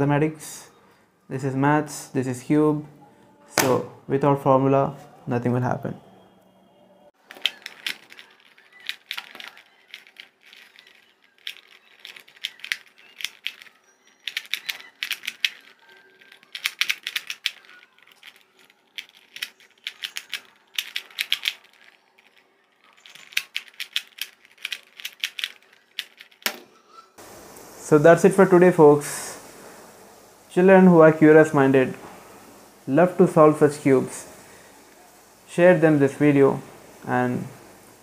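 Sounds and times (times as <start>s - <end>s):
puzzle cube clicking as turned: 7.2s - 26.5s.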